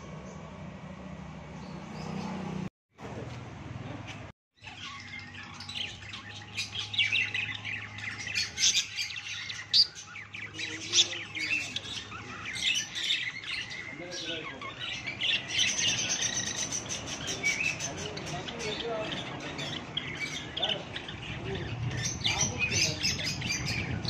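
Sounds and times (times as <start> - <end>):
birds chirping and squawking: 1.2 - 2.7, 3.8 - 24.0.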